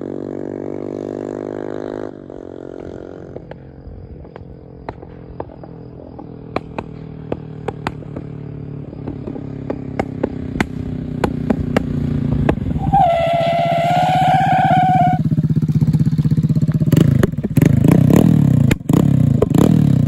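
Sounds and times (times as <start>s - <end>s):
high steady engine note: 0.0s - 20.0s
motorcycle engine approaching: 0.0s - 20.0s
exhaust pops and bangs: 4.2s - 8.4s, 9.0s - 13.3s, 16.9s - 17.8s.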